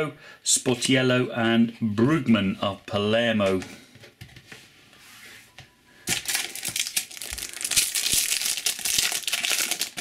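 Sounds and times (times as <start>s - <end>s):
card pack wrapper crinkling: 6.1s - 10.0s.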